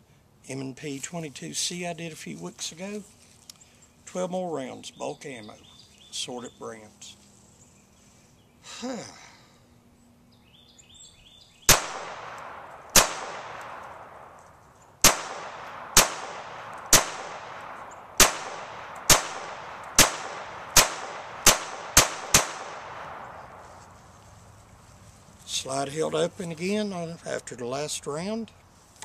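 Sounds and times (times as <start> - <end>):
pistol shots with echo: 11.7 - 14.4, 15.0 - 23.4.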